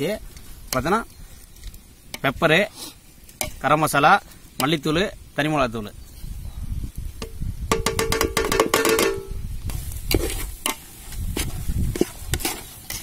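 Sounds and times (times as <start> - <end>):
metal plate clattering on pot: 7.7 - 9.3
metal ladle stirring in pot: 9.7 - 13.0.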